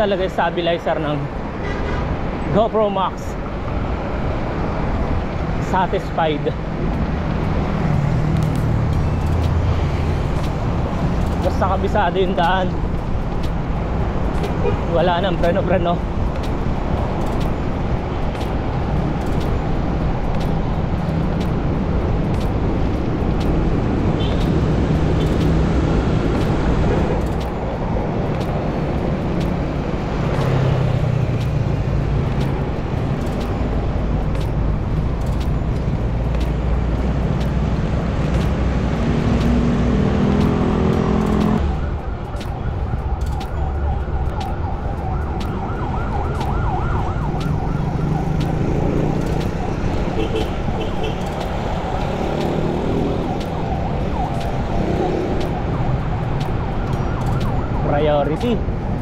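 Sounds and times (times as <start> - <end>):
car engines: 0.0 - 59.0
wind rushing over microphone: 3.3 - 59.0
steady siren tone: 38.6 - 59.0.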